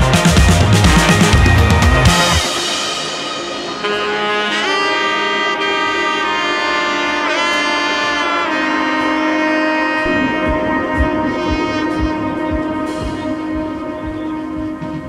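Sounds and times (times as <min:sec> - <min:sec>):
drum beat: 0:00.0 - 0:04.1, 0:10.0 - 0:15.0
sliding melody of held notes: 0:00.7 - 0:15.0.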